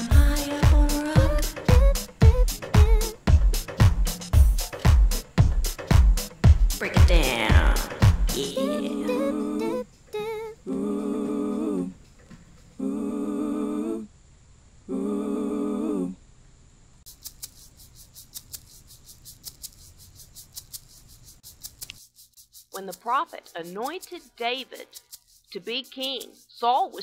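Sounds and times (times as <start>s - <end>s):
person humming: 0.0s - 5.1s, 6.7s - 12.0s, 12.8s - 14.1s, 14.9s - 16.2s
fast faint clicks: 17.1s - 26.6s.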